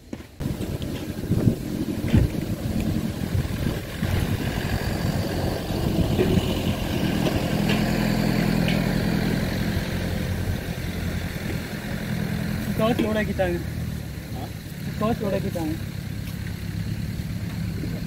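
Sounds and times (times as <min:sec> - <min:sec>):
truck diesel engine running: 0:00.0 - 0:18.0.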